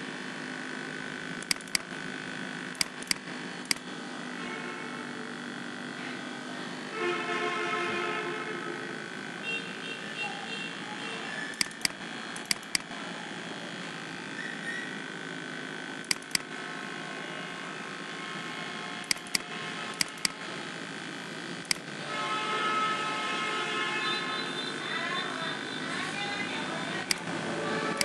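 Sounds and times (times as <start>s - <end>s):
hum with steady tones: 0.0s - 28.0s
mouse button clicking: 1.4s - 1.9s, 2.8s - 3.8s, 11.6s - 12.9s, 16.1s - 16.4s, 19.0s - 20.4s.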